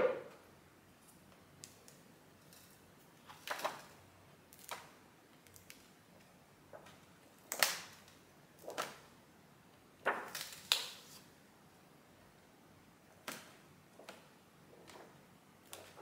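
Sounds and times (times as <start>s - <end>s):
book pages turning: 3.2s - 4.9s, 13.2s - 16.0s.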